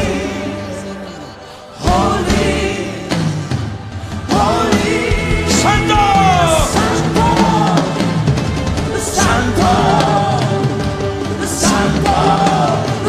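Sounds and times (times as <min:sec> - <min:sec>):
person singing long sliding notes: 0:00.0 - 0:03.4
band playing worship music: 0:00.0 - 0:13.0.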